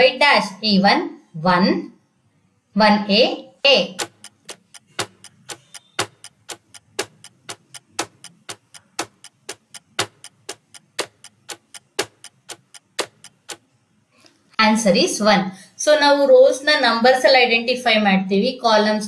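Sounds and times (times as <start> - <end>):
countdown timer ticking: 3.8 - 13.7.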